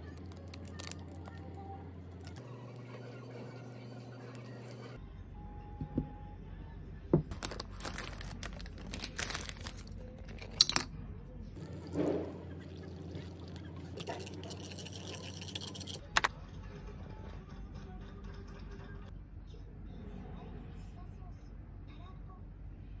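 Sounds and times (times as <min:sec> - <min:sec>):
plastic wrap crinkling: 0:00.0 - 0:01.4, 0:07.3 - 0:10.8
water pouring into bowl: 0:11.6 - 0:16.0.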